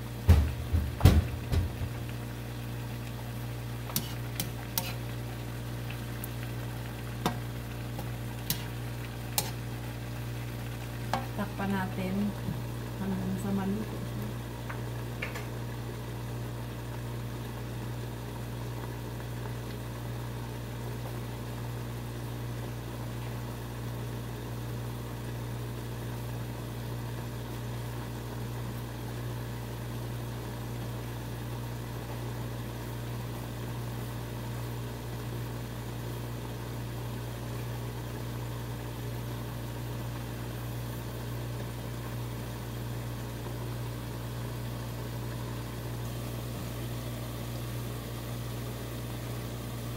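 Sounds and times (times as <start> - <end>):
low machine hum: 0.0 - 49.9.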